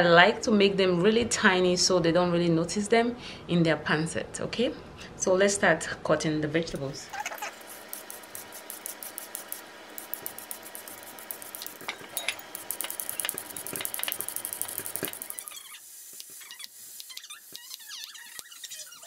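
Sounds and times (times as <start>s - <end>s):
peeler scraping carrots: 7.1s - 19.0s.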